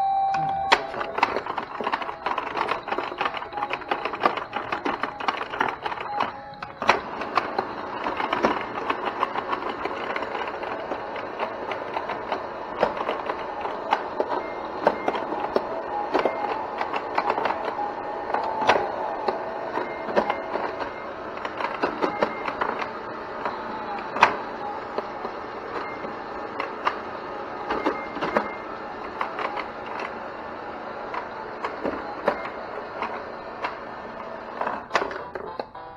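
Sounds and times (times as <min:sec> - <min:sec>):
short electronic beeps: 0:00.0 - 0:05.1, 0:35.5 - 0:35.9
pinball rattling and rolling: 0:00.6 - 0:35.8.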